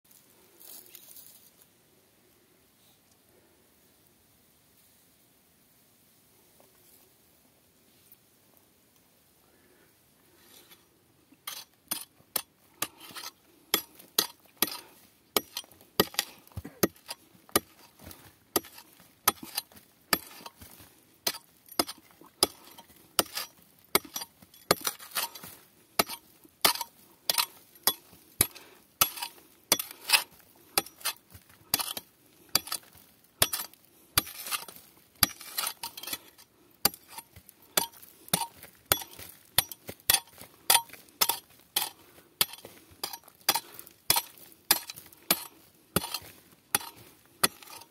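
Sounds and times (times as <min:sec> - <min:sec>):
hammer striking rock: 0:13.1 - 0:14.8, 0:15.4 - 0:17.9, 0:18.5 - 0:20.6, 0:21.2 - 0:25.3, 0:26.0 - 0:30.0, 0:30.8 - 0:36.2, 0:37.8 - 0:47.8.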